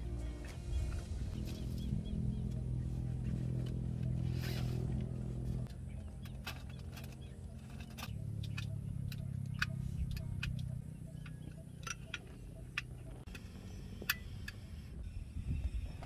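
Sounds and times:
low steady hum: 0.0 - 16.0
light metallic clicks and clacks: 5.6 - 14.6.

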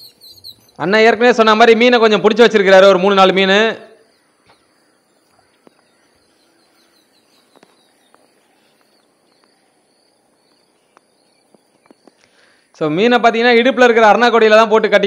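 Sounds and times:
small chirps: 0.0 - 0.8, 4.1 - 12.8.

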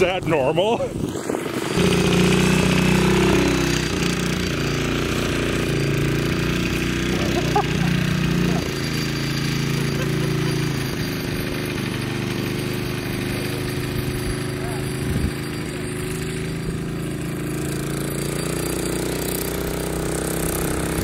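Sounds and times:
mower engine running: 0.0 - 21.0
rapid mechanical clatter: 3.8 - 21.0.

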